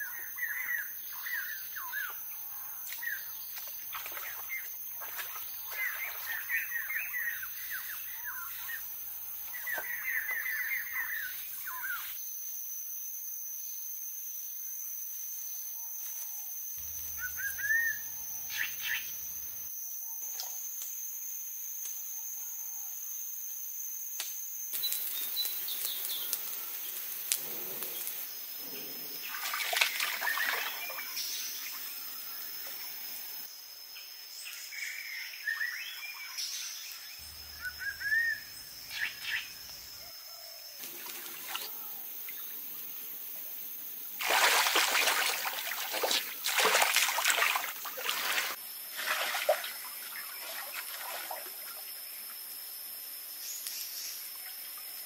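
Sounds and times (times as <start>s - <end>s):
birds chirping: 0.1s - 12.2s, 16.8s - 19.6s, 37.2s - 40.0s.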